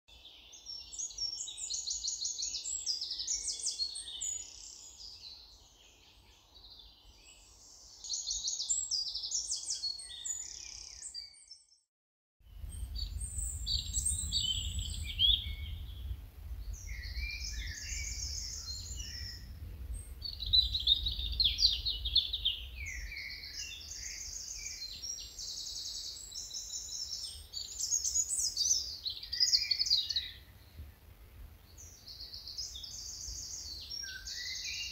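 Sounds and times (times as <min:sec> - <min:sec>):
songbirds singing: 0:00.1 - 0:11.8, 0:12.4 - 0:34.9
low rumble: 0:12.5 - 0:22.8.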